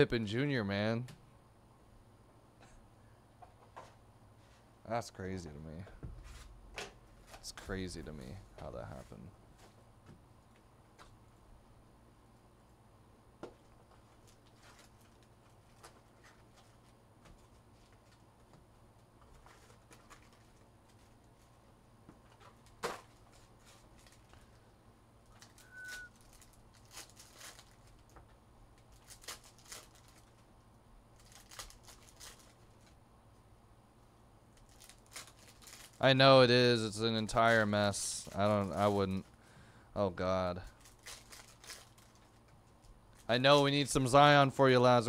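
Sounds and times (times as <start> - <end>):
foil wrappers crinkling: 13.8 - 18.5, 19.2 - 24.6, 25.2 - 33.0, 34.5 - 39.4, 40.6 - 45.0
brief high squeak: 25.6 - 26.2.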